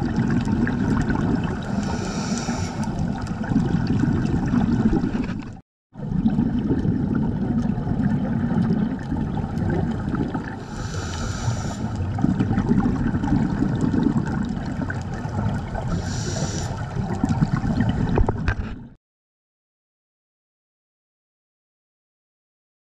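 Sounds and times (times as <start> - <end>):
underwater rumble with crackling: 0.0 - 19.0
breaths through scuba regulator: 1.6 - 3.0, 10.6 - 12.1, 15.9 - 16.9.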